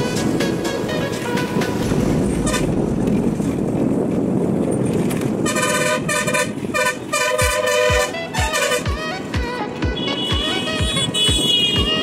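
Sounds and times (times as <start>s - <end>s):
bus engine and road noise: 0.0s - 12.0s
vehicle horn short blasts: 5.4s - 9.1s, 9.9s - 12.0s.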